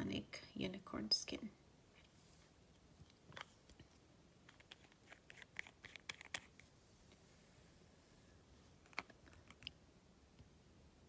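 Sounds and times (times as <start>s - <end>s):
hands handling small objects: 1.9s - 7.2s, 8.7s - 9.8s.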